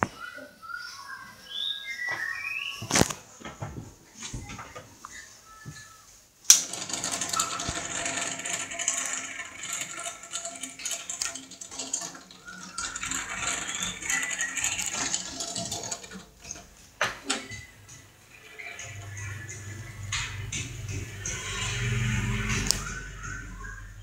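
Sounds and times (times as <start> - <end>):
fan mechanical rattling: 6.5 - 24.0.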